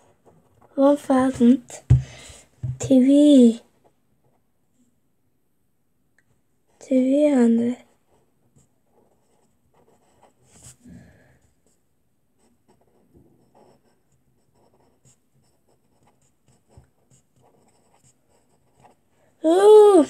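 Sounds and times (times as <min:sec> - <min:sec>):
pen scratching on paper: 0:07.4 - 0:10.8, 0:12.4 - 0:19.9.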